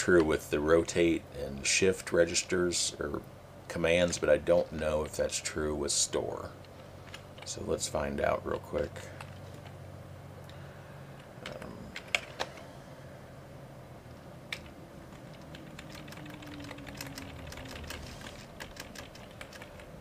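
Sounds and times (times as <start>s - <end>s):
faint room noise: 0.0s - 20.0s
computer keyboard keystrokes: 11.4s - 12.6s, 14.5s - 20.0s.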